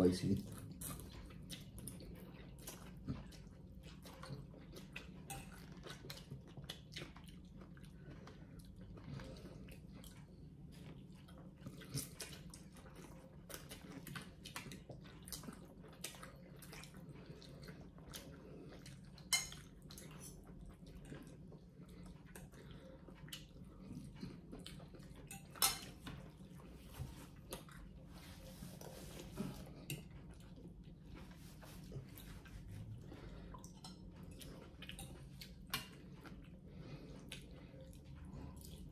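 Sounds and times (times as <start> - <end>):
cutlery clinking on ceramic bowls: 19.2 - 19.7, 25.2 - 26.2.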